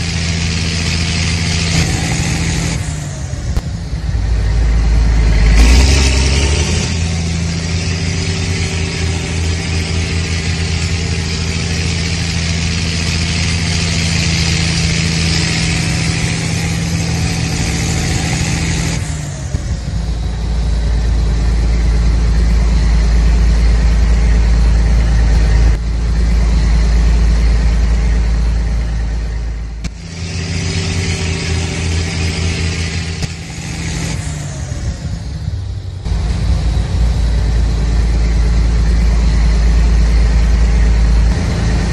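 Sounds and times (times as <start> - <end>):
toy tractor motor drone: 5.2 - 20.8, 29.8 - 35.6.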